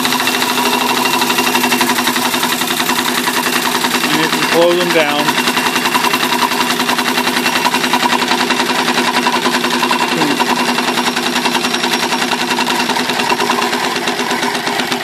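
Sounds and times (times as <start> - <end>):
steam engine running: 0.0 - 15.0.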